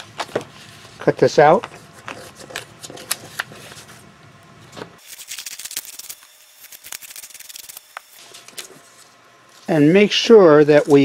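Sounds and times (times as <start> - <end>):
paper rustling: 1.7 - 4.0
scissors snipping paper: 5.0 - 8.7.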